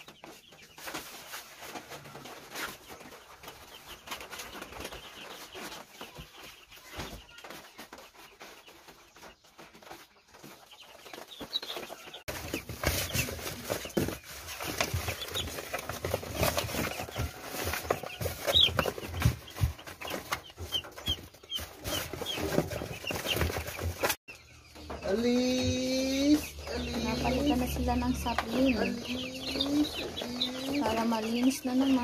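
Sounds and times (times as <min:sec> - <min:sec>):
chicks peeping: 0:00.0 - 0:32.0.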